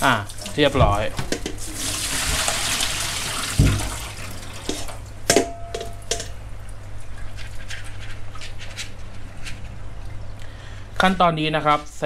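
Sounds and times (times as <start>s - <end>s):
water draining and dripping: 0.0s - 5.1s
metal bowl clanking: 0.3s - 2.9s, 3.5s - 6.5s
dull thump: 3.6s - 3.9s.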